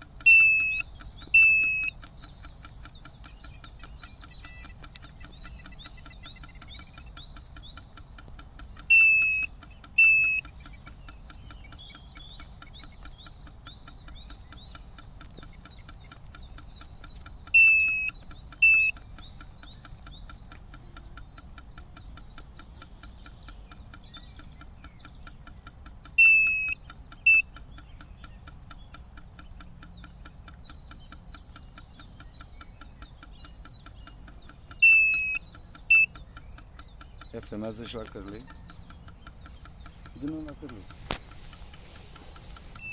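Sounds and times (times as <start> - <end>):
fish finder beeping: 0.0 - 7.2, 8.8 - 10.8, 17.1 - 19.1, 26.1 - 27.6, 34.7 - 36.2, 38.4 - 42.9
faint bird chirps: 0.0 - 42.9
fast even ticking: 0.0 - 42.9.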